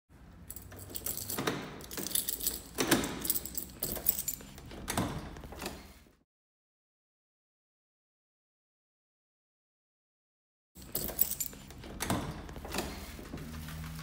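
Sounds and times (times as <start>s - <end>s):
keys jangling: 0.4s - 5.0s, 10.8s - 12.9s
key clicking in door lock: 0.6s - 5.2s, 10.8s - 12.4s.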